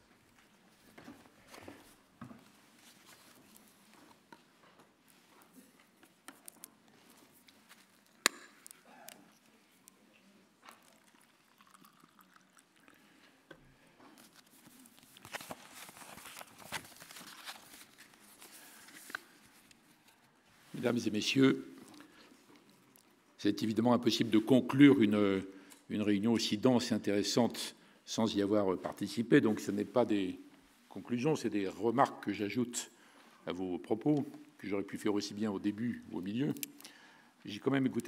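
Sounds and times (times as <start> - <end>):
rustling at lectern: 0.3 - 8.8, 14.0 - 22.7.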